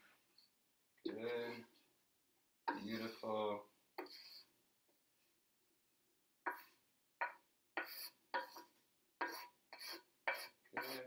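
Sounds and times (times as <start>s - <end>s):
utensil scraping noodles in a pan: 2.7s - 3.3s, 4.0s - 4.6s, 6.5s - 11.0s.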